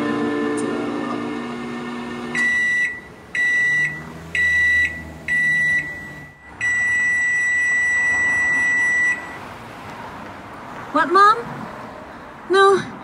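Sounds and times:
electronic beeps: 2.4 - 9.4.

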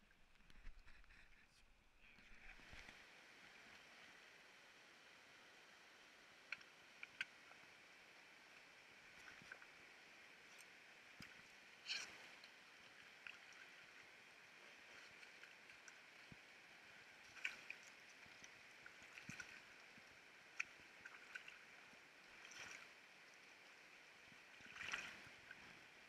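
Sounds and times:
small water splashes and clicks: 0.0 - 1.3, 2.1 - 4.1, 6.4 - 26.0
river water lapping and gurgling: 2.1 - 26.0.

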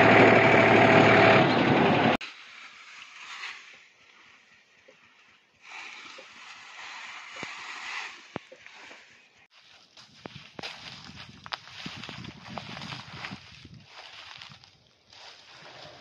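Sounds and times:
tractor engine running: 0.0 - 2.2
dry stalks rustling and snapping: 2.2 - 16.0.

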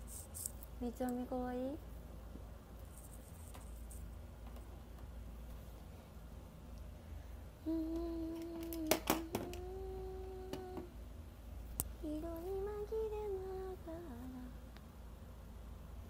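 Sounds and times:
woman humming: 7.6 - 10.9, 12.0 - 14.5.

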